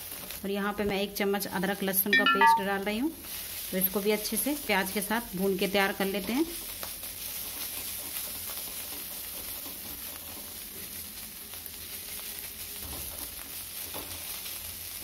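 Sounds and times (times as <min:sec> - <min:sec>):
onion sizzling in oil: 0:00.0 - 0:15.0
spatula stirring in a pan: 0:03.2 - 0:15.0.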